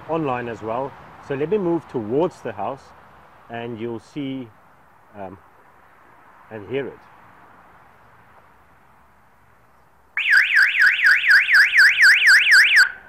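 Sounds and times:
electronic siren warbling: 10.2s - 13.0s.

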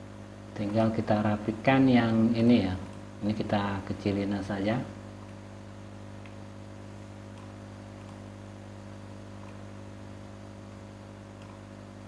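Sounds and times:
electrical mains hum: 0.0s - 12.0s
mouse clicks: 6.2s - 6.4s, 7.0s - 8.2s, 9.4s - 9.6s, 11.4s - 11.6s.

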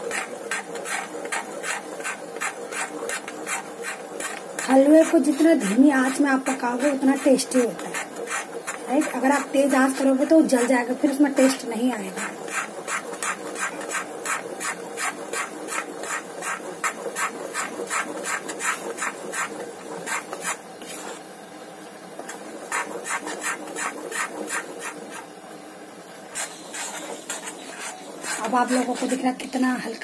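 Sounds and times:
mixture sizzling in ghee: 0.0s - 30.0s
metal spatula scraping iron pan: 12.1s - 21.2s, 22.2s - 25.2s, 26.3s - 29.5s.

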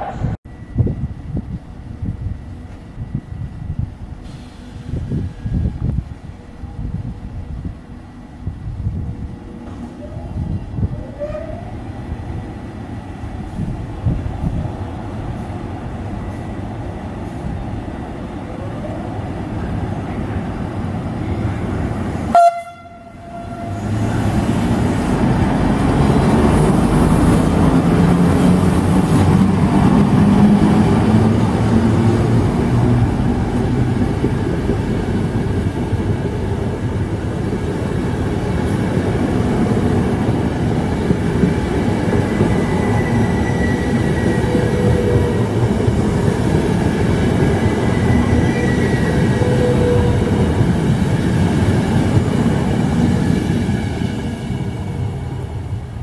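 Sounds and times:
train rumbling past: 0.0s - 56.0s
train horn toot: 22.3s - 24.0s.

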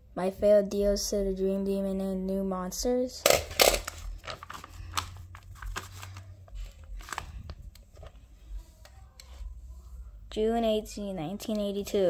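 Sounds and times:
paper pages rustling: 3.5s - 9.5s.

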